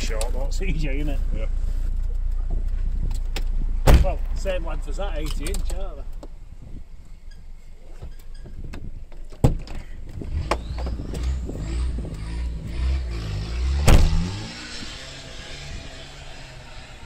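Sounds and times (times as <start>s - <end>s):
off-road engine revving: 10.2s - 17.0s.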